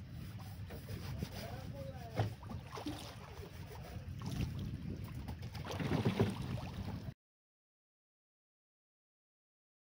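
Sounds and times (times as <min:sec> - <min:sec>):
choppy water: 0:00.0 - 0:07.2
wind rumble on microphone: 0:00.0 - 0:07.2.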